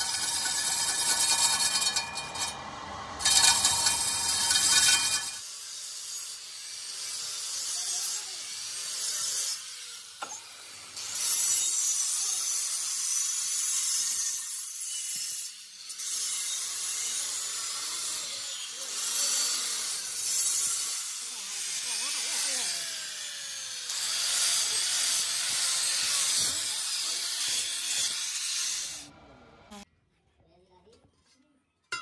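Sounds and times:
angle grinder grinding steel: 0.0 - 29.1.

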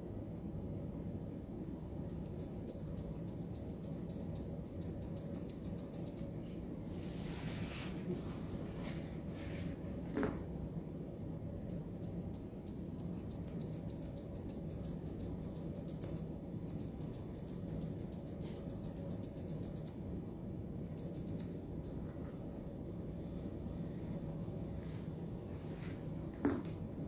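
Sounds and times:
steady low hum: 0.0 - 27.0
scissors snipping: 2.0 - 6.3, 11.6 - 20.0, 20.8 - 22.1.

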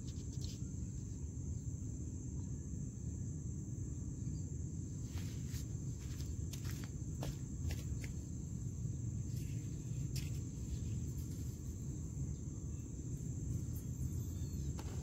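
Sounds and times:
insects chirring: 0.0 - 15.0
low background rumble: 0.0 - 15.0.

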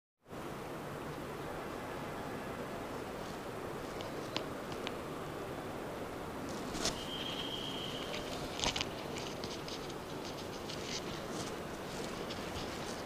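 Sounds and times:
steady background hiss: 0.2 - 13.0
steady high tone: 7.0 - 8.5.

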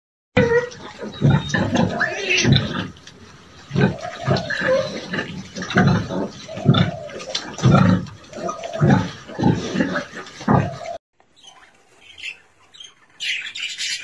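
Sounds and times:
piglets squealing: 0.4 - 2.8, 3.8 - 9.7
sow grunting: 3.7 - 11.0.

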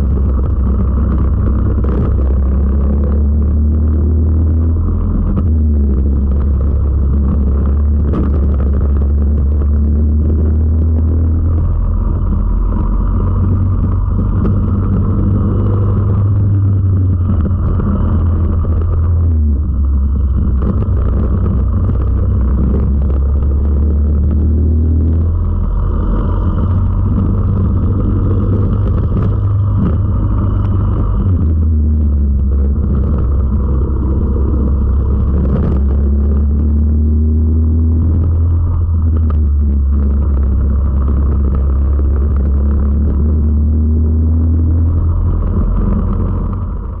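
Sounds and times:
kart engine at race speed: 0.0 - 47.0.

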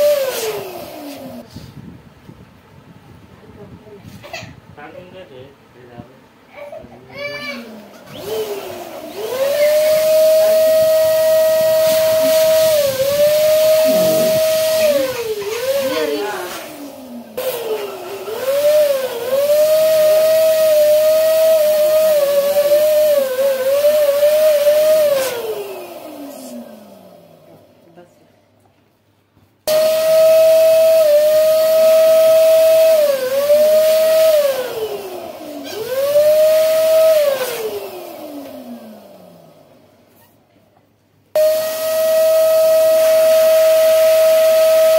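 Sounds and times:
electric balloon pump whining: 0.0 - 1.4, 7.2 - 27.6, 29.7 - 39.5, 41.4 - 44.9
rush of air: 8.8 - 18.2.

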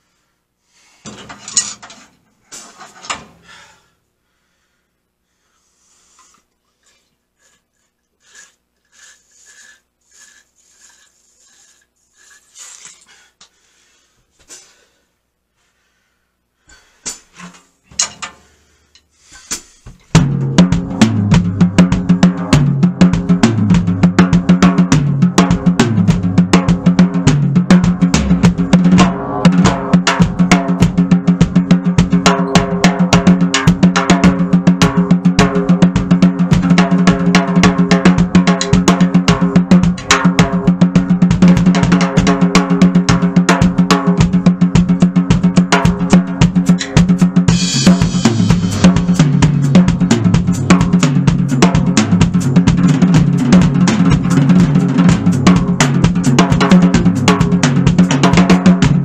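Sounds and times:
fast drum solo: 20.1 - 59.0.

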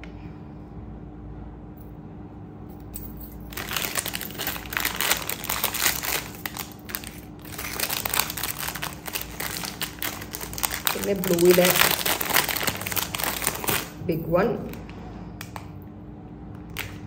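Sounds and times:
faint steady hum: 0.0 - 17.0
plastic pouches crinkling: 3.4 - 15.7.

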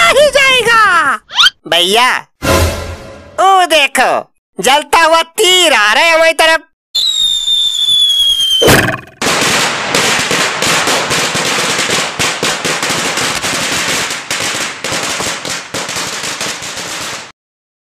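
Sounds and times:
firecrackers crackling and banging: 9.2 - 17.3.

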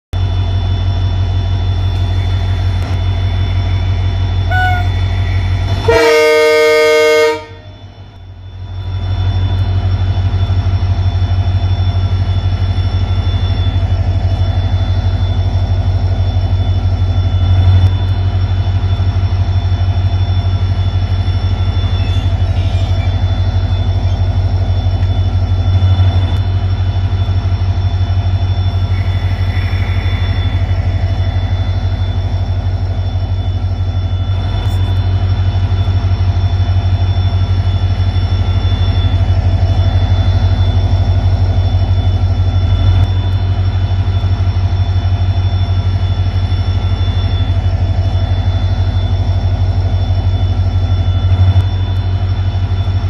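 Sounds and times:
electric locomotive humming: 0.2 - 53.0
locomotive horn blast: 4.4 - 8.0.

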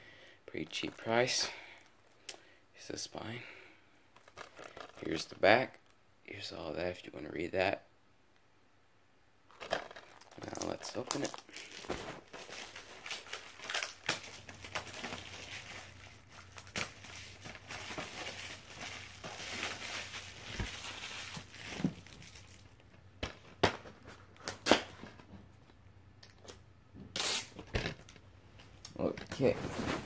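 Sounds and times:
plastic wrap crinkling and tearing: 4.2 - 5.2, 9.5 - 22.9.

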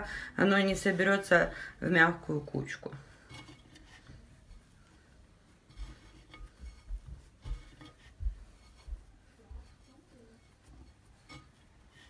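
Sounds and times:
soft thuds of kneaded dough: 3.2 - 12.0.

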